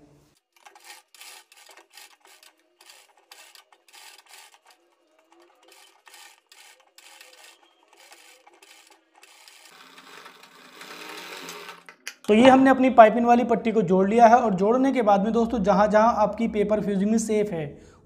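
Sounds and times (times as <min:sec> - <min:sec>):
sewing machine stitching: 0:00.4 - 0:11.9.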